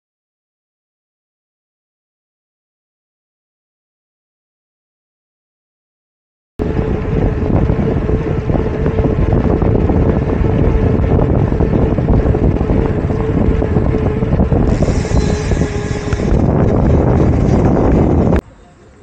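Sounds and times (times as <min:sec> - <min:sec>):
wind buffeting microphone: 0:06.6 - 0:19.0.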